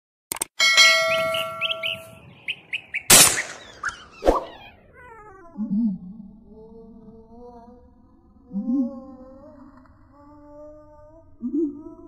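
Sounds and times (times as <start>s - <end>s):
bell-like ding: 0.6s - 2.4s
sharp swish: 3.1s - 4.6s.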